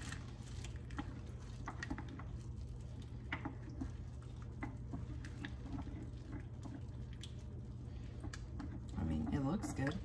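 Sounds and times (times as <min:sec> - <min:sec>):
spoon stirring thick mixture: 0:00.0 - 0:10.0.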